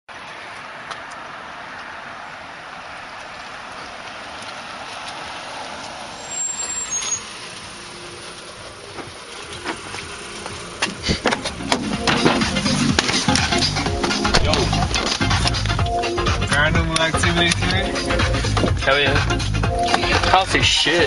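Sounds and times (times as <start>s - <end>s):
road vehicle noise: 0.1s - 21.0s
thin high squeal: 6.2s - 7.4s.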